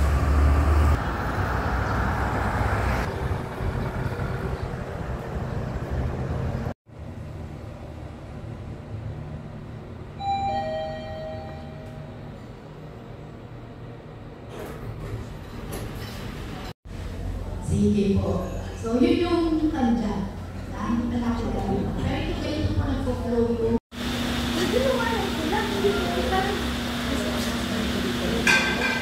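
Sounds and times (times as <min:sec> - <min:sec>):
vehicles passing: 0:00.0 - 0:06.8
elevator two-tone chime: 0:10.2 - 0:12.2.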